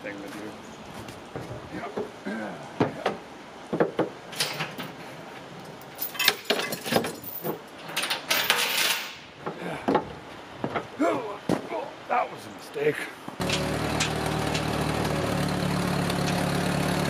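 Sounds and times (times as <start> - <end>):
chains clinking and rattling: 5.8 - 9.1
metal knocks and clanks: 6.0 - 9.1.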